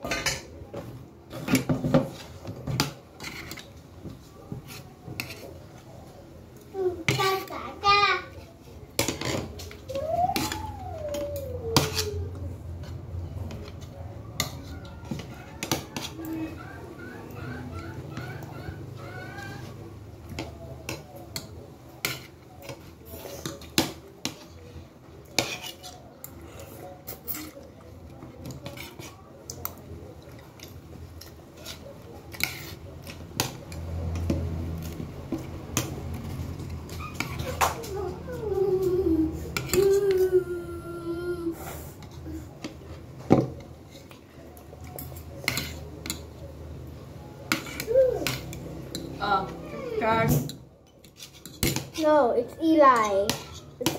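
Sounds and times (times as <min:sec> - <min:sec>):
cutlery clinking on a plate: 0:00.0 - 0:00.6, 0:44.8 - 0:46.4.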